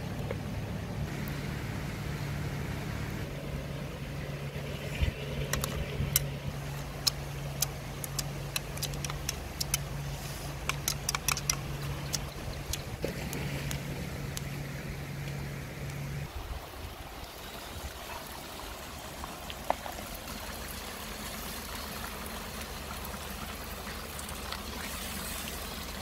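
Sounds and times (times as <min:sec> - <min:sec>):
low engine hum: 0:00.0 - 0:26.0.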